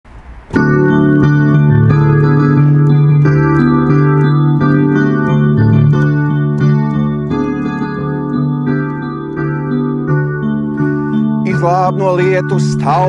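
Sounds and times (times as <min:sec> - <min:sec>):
electronic keyboard organ chords: 0:00.2 - 0:13.0.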